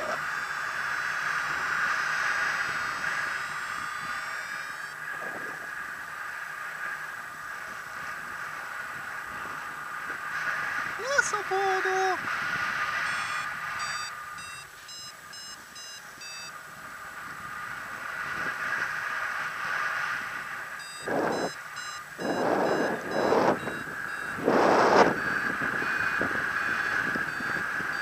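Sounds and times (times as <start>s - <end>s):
wind gusts buffeting microphone: 7.5s - 13.8s, 16.8s - 28.0s
variometer quick short beeps: 13.1s - 16.5s, 20.8s - 26.2s.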